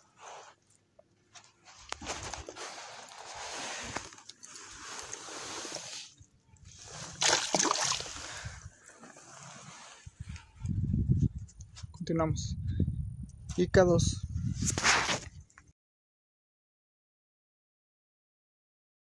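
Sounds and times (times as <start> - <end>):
water sloshing and splashing: 1.8 - 10.4.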